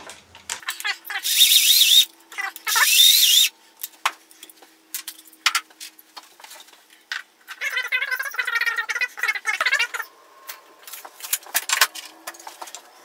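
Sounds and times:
impact driver whining: 0:01.2 - 0:02.1.

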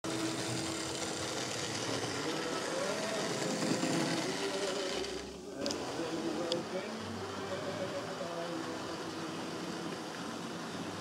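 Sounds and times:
wheels rolling on track: 0:00.0 - 0:11.0
small electric motor whining: 0:00.1 - 0:08.0.

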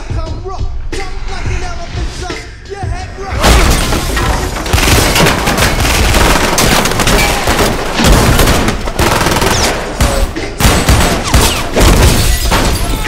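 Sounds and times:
rapid automatic gunfire: 0:04.7 - 0:12.3.

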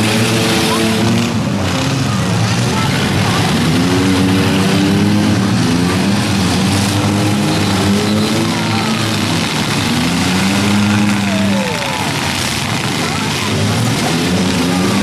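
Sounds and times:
car engines revving: 0:00.0 - 0:15.0.

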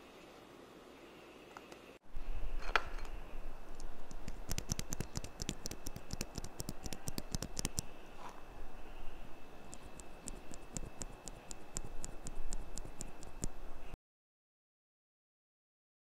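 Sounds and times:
fingers scratching keyboard switch: 0:03.8 - 0:07.9, 0:09.7 - 0:13.6
keyboard switch clicking: 0:04.1 - 0:07.9.

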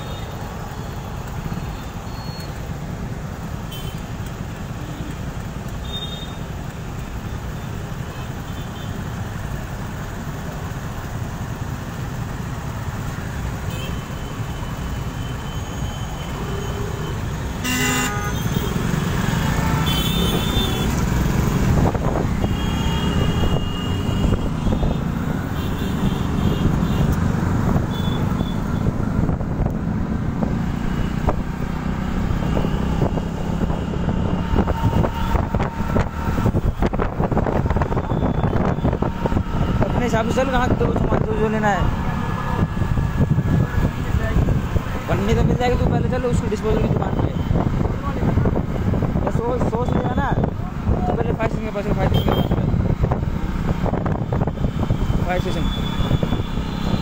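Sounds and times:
street traffic: 0:00.0 - 0:57.0
vehicle horns tooting: 0:15.3 - 0:21.0, 0:22.4 - 0:27.2, 0:27.9 - 0:28.7, 0:32.3 - 0:36.6, 0:37.7 - 0:41.5, 0:49.6 - 0:50.6, 0:52.0 - 0:52.7, 0:55.1 - 0:57.0.

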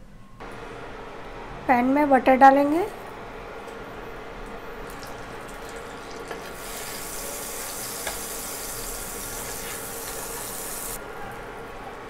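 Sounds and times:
butter sizzling in a pan: 0:05.7 - 0:11.0.

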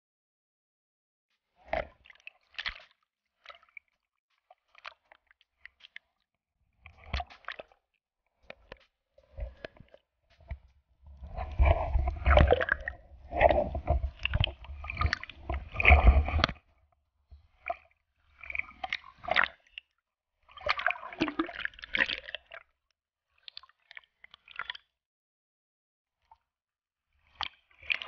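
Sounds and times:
water sloshing and splashing: 0:01.5 - 0:16.8, 0:17.4 - 0:22.7, 0:27.2 - 0:28.0.

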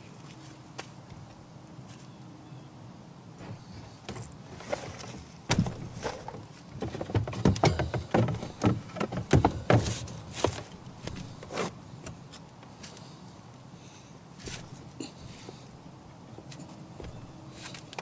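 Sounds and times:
gear knocking and clattering: 0:04.7 - 0:11.3.

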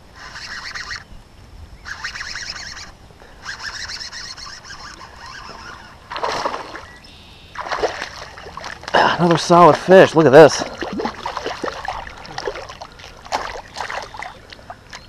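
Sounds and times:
fishing reel whirring: 0:00.2 - 0:01.1, 0:01.8 - 0:06.9.

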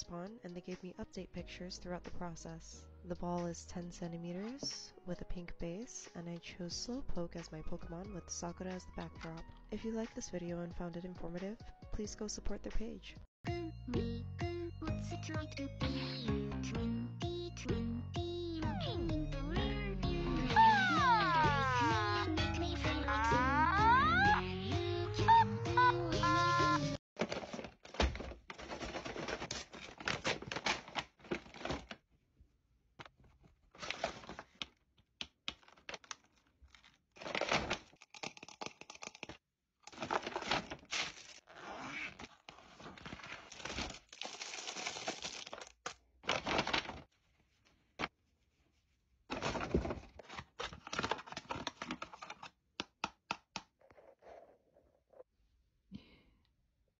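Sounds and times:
paper bag rustling and crinkling: 0:27.2 - 0:32.0, 0:33.0 - 0:34.8, 0:35.6 - 0:39.3, 0:39.9 - 0:47.2, 0:49.3 - 0:52.5.

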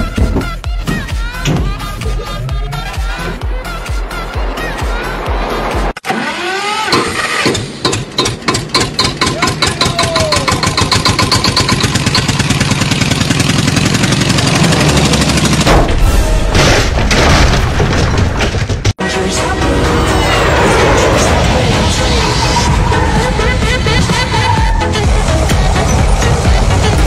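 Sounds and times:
small engine starting and running: 0:06.0 - 0:15.7, 0:23.4 - 0:27.0.

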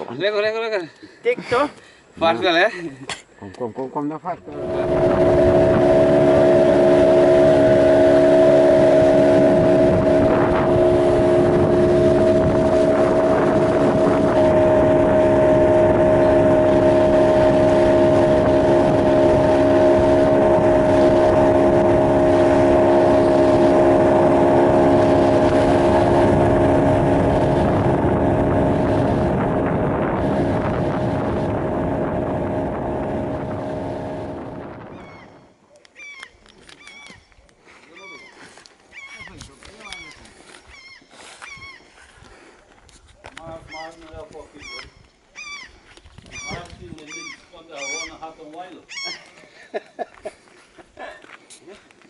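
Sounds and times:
outboard motor drone: 0:04.4 - 0:37.1.

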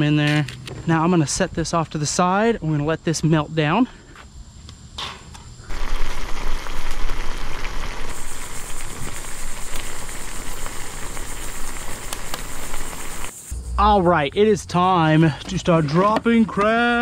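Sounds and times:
wood fire hissing: 0:00.9 - 0:17.0
fire crackling: 0:05.6 - 0:14.2.

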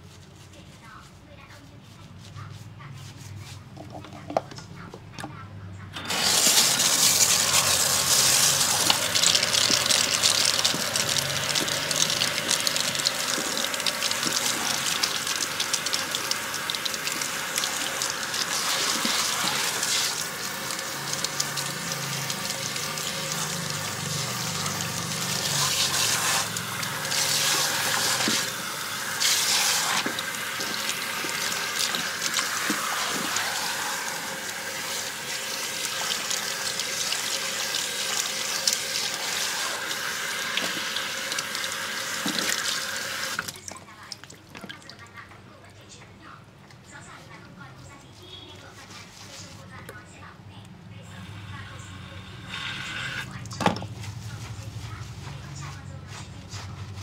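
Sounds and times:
water spraying on hair: 0:06.0 - 0:43.6, 0:51.2 - 0:57.0
water splashing into basin: 0:06.1 - 0:35.0.

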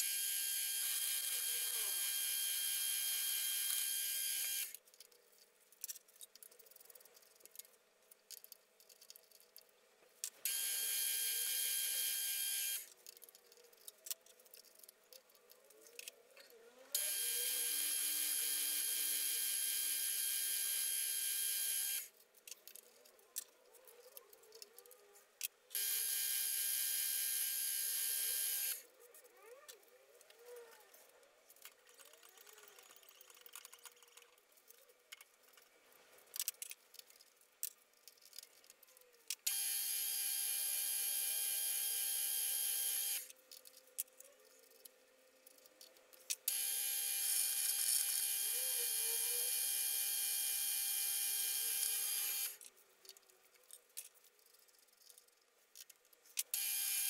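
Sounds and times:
drill motor high-pitched whine: 0:00.0 - 0:04.8, 0:10.5 - 0:12.9, 0:17.0 - 0:22.1, 0:25.7 - 0:28.8, 0:39.5 - 0:43.3, 0:46.5 - 0:52.6, 0:56.5 - 0:57.0.

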